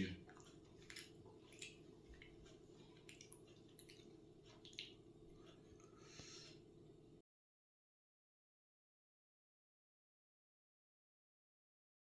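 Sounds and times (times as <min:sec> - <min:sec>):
low room hum: 0:00.0 - 0:07.2.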